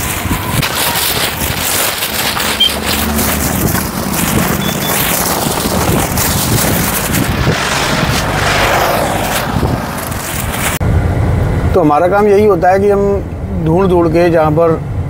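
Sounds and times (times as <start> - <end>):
wind buffeting microphone: 0.0 - 11.7
vehicle running: 0.0 - 11.8.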